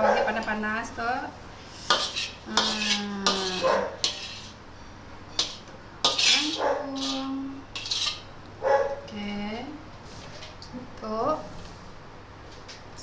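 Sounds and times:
spoons clinking on plates: 5.3 - 8.2.

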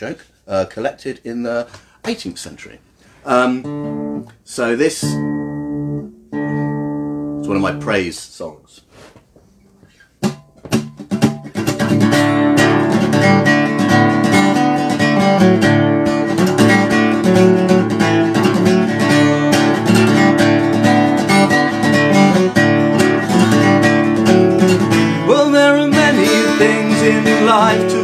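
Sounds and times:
acoustic guitar strumming: 3.5 - 8.0, 10.2 - 28.0.

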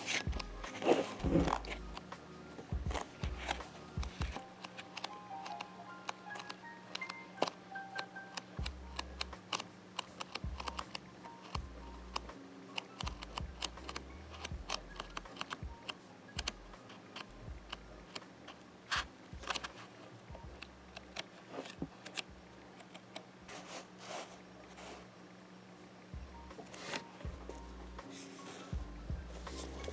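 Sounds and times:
paper pages turning: 0.0 - 2.1, 26.6 - 27.2
paper rustling: 0.0 - 2.1, 23.5 - 25.1, 26.6 - 27.3, 28.0 - 28.8
faint steady hum: 0.0 - 29.9.

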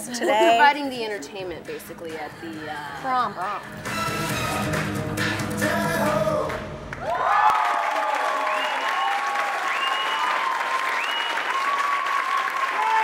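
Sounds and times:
music: 0.0 - 7.0
crowd applauding and cheering: 3.8 - 13.0.

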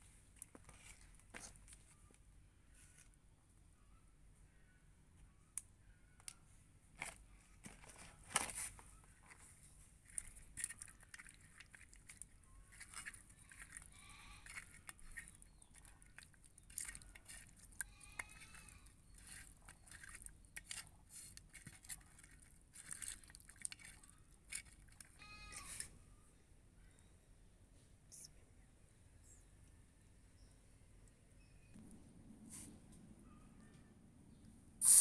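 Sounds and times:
wet squelches of hands mixing fish: 10.0 - 25.2
faint animal call: 25.1 - 26.2.

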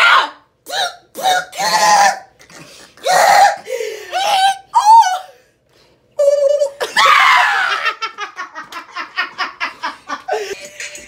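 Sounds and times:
women laughing hysterically: 6.6 - 10.6.

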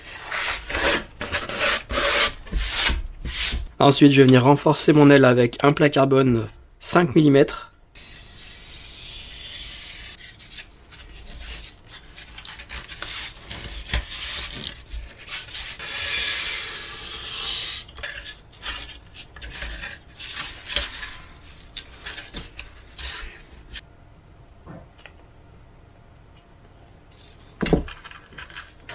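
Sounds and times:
knife cutting along a ruler: 15.2 - 18.4.

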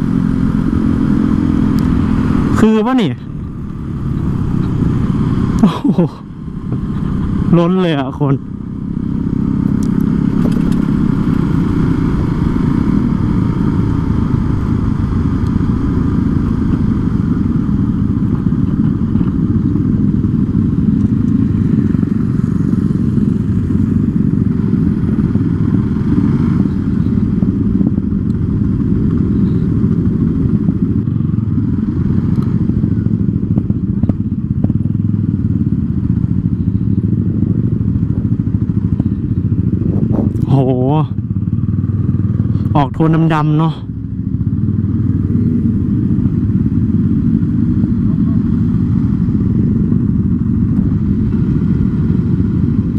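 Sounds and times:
motorcycle engine running: 0.0 - 52.9
road noise: 0.0 - 52.9.

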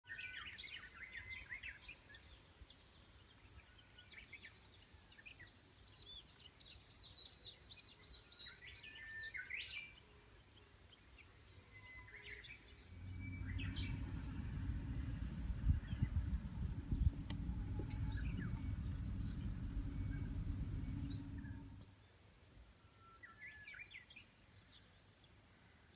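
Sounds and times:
birds chirping and trilling: 12.7 - 21.8
low rumble: 12.7 - 21.8.

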